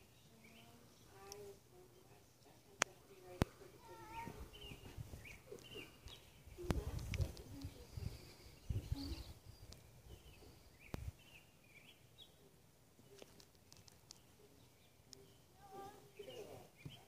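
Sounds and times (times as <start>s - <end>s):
faint outdoor ambience: 0.0s - 17.0s.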